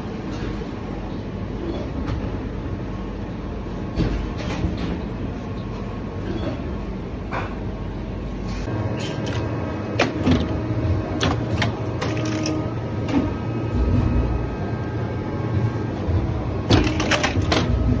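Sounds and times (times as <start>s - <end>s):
machinery humming: 0.0s - 18.0s
machine clacks and clicks: 9.2s - 14.2s, 16.0s - 18.0s.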